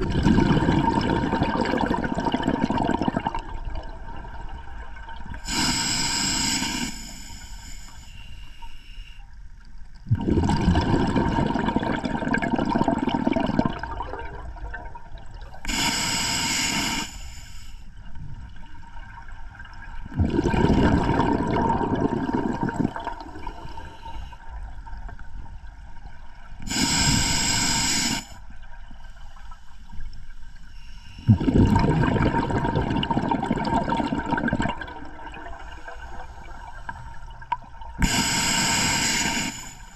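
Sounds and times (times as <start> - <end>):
exhaled bubbles rushing: 0.0 - 5.4, 10.1 - 15.6, 18.5 - 23.6, 31.3 - 35.7
hissing inhale through regulator: 5.4 - 9.3, 15.6 - 18.0, 23.0 - 24.6, 26.6 - 28.4, 29.0 - 31.4, 35.4 - 37.3, 38.0 - 39.9.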